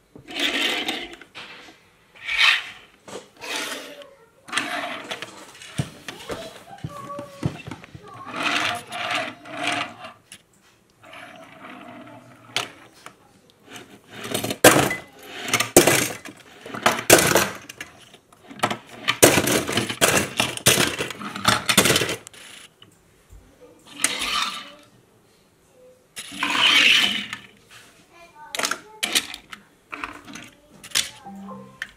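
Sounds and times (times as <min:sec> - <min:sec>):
metal toy cars clinking: 0:26.2 - 0:27.5.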